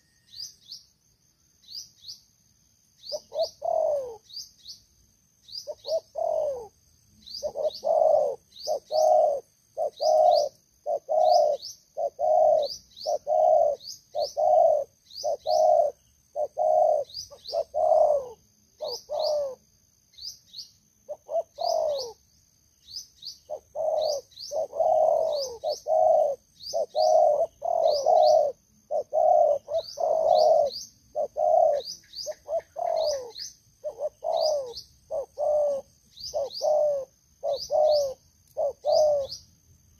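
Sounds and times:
doves cooing: 3.1s - 4.2s, 5.6s - 6.8s, 7.4s - 19.6s, 21.1s - 22.2s, 23.5s - 39.4s.

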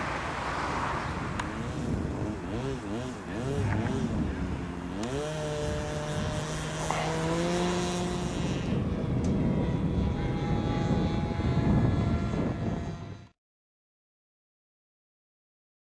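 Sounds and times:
rushing noise: 0.0s - 3.1s
model plane engine and propeller: 0.0s - 13.3s.

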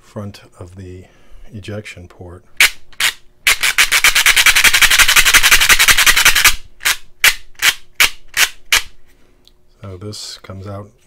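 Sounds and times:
plastic ratchet clicking: 2.6s - 8.9s.

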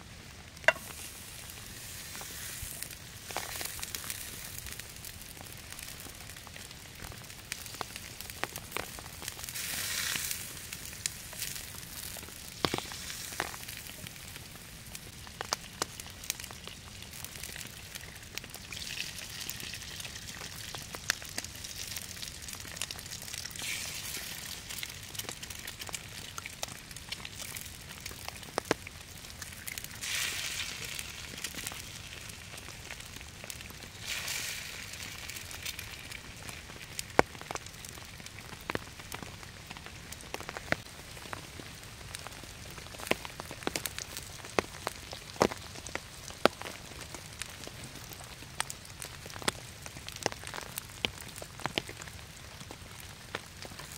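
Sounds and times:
burning logs crackling: 0.0s - 53.9s
egg sizzling in frying pan: 0.6s - 39.3s.

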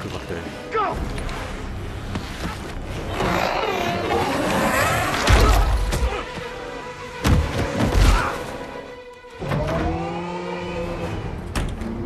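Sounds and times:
action film music: 0.0s - 12.0s.

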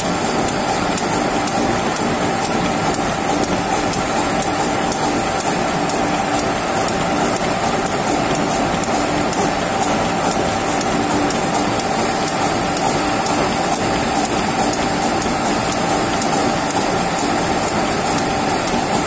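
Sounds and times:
gear-cutting machine humming and clicking: 0.0s - 19.0s.

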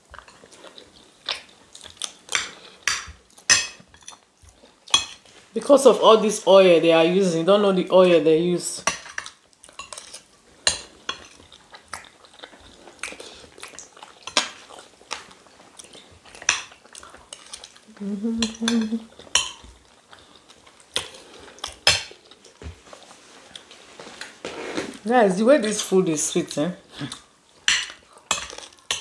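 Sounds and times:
person humming: 17.9s - 19.1s
spoons clinking on plates: 18.4s - 19.7s.

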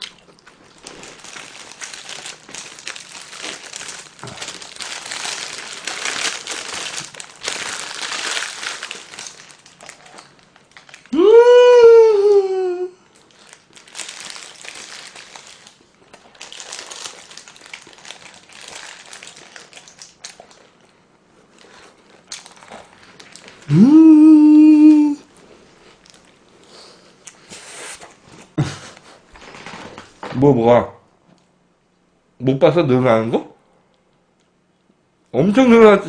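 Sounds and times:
man chewing food: 0.0s - 11.0s, 13.1s - 23.8s
man humming mmm: 11.1s - 13.0s, 23.7s - 25.3s.

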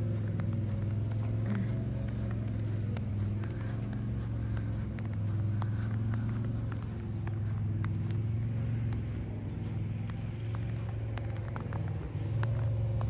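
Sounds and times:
light ticks: 0.0s - 13.0s
low mechanical hum: 0.0s - 13.0s.

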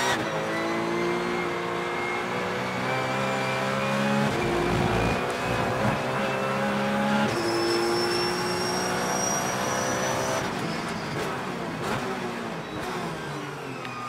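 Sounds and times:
race car engine at full throttle: 0.0s - 14.0s
car braking: 4.2s - 14.0s.

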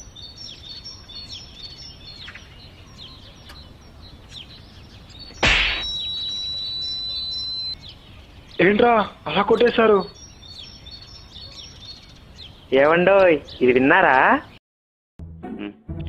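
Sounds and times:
birds chirping: 0.0s - 14.6s
sharp slap: 5.4s - 5.9s.

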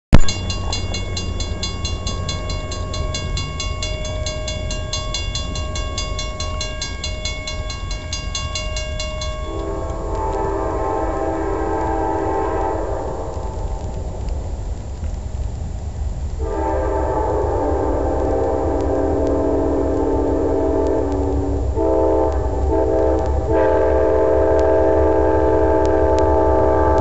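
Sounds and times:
railroad crossing bell ringing: 0.1s - 10.2s
locomotive horn blast: 9.1s - 13.6s, 16.4s - 27.0s.

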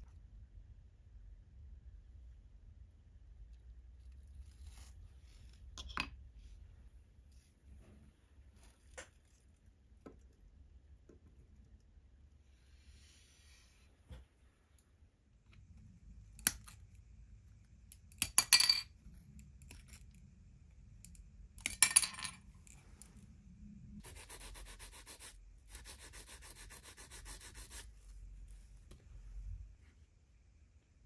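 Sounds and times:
rubbing on model part: 24.0s - 29.0s.

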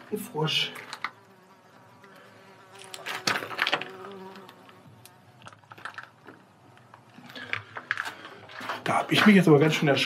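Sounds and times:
low insect buzz: 0.0s - 7.3s.

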